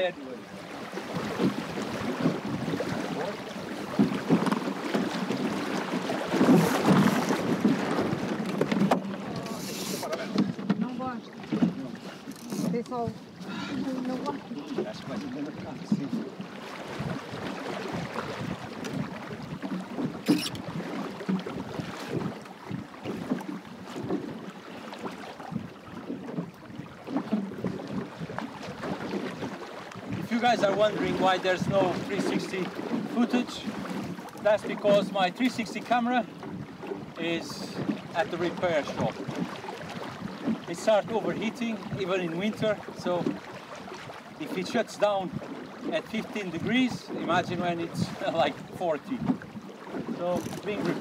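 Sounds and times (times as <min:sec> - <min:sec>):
water splashing along hull: 0:00.0 - 0:51.0
wind buffeting microphone: 0:01.0 - 0:24.4, 0:25.1 - 0:34.2, 0:38.8 - 0:40.6.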